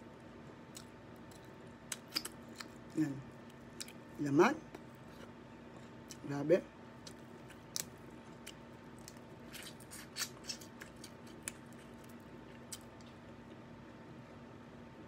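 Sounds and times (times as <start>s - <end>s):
faint steady hum: 0.0s - 15.0s
eating clicks and smacks: 7.0s - 13.2s.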